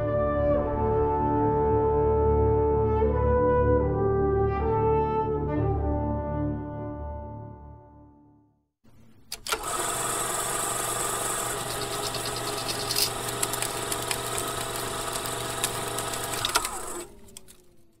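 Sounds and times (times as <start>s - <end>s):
motor clicks: 9.3s - 18.0s
motor running with rattle: 9.4s - 18.0s
motor falling whine: 9.5s - 18.0s.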